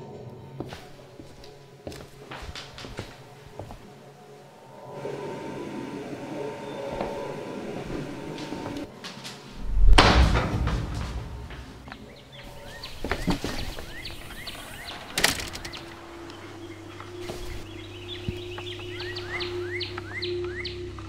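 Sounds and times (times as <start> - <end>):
knocks and thuds: 9.6 - 12.1
small birds chirping: 11.5 - 21.0.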